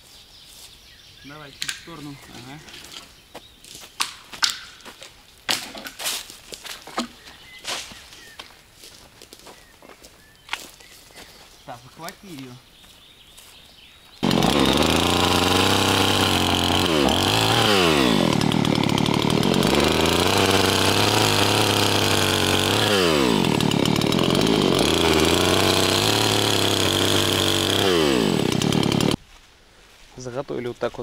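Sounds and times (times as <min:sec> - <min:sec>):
chainsaw cutting wood: 0:04.0 - 0:04.9, 0:05.5 - 0:06.2, 0:14.2 - 0:29.2.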